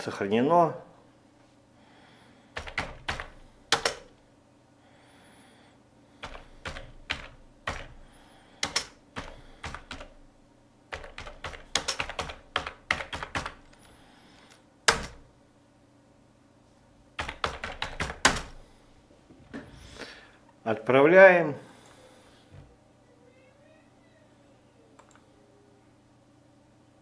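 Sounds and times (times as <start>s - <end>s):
keyboard typing: 2.6s - 4.1s, 6.2s - 10.2s, 10.9s - 13.9s, 14.9s - 15.2s, 17.2s - 18.6s.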